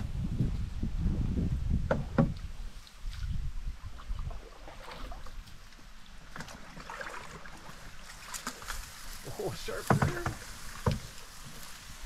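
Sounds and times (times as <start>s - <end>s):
stalks brushing canoe hull: 7.3s - 12.0s
dry reeds rustling and scraping: 7.6s - 12.0s.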